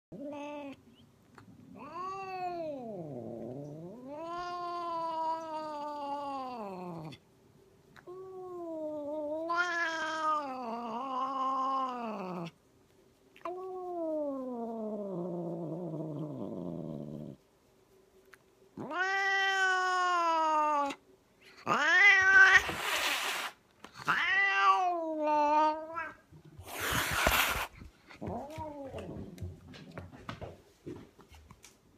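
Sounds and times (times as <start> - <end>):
cat yowling: 18.8 - 21.0, 24.1 - 26.2.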